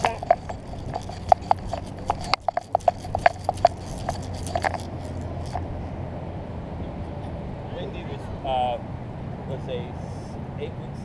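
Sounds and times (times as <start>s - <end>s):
camera gear clicking: 0.0s - 5.7s
steady low rumble: 0.0s - 11.0s.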